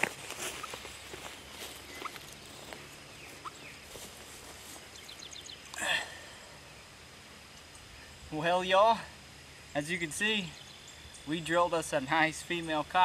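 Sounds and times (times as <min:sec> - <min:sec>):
faint rustles and ticks: 0:00.0 - 0:05.8
faint chirps: 0:00.4 - 0:11.6.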